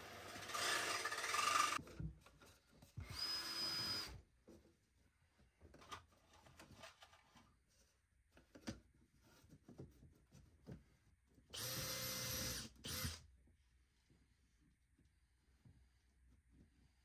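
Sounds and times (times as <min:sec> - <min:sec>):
cordless drill driving a screw: 0:00.0 - 0:01.8, 0:03.1 - 0:04.1, 0:11.6 - 0:13.2.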